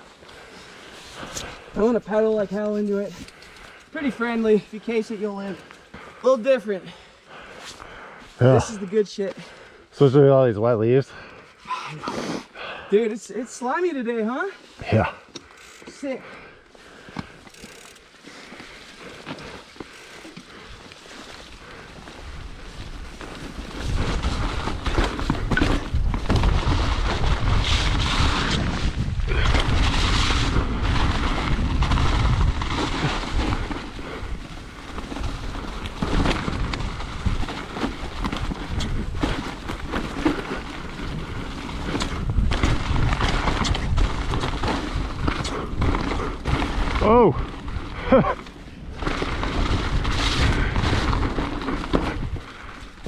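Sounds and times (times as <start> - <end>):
bike tyres on wet mud: 0.0 - 11.6, 12.4 - 53.0
bike knocks and rattles: 23.1 - 34.0, 48.4 - 52.7.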